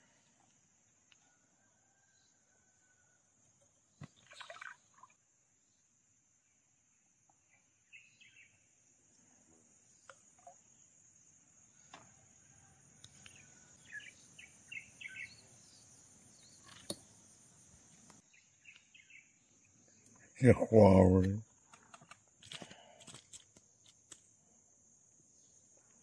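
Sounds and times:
short bird chirps: 0:13.2 - 0:17.0.

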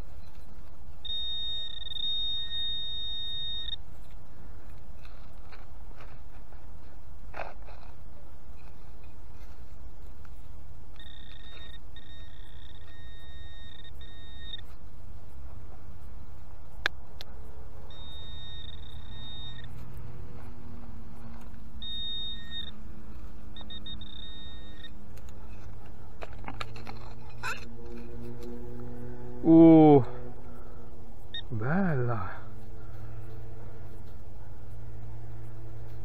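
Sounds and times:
metal detector beeping: 0:00.0 - 0:06.2, 0:10.3 - 0:15.4, 0:17.4 - 0:30.0, 0:30.6 - 0:36.0.

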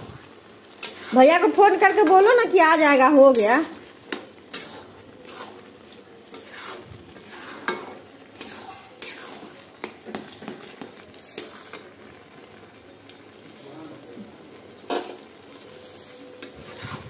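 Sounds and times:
spatula scraping in pan: 0:00.0 - 0:12.6, 0:14.8 - 0:17.0
spatula clinking metal pan: 0:07.6 - 0:10.3.

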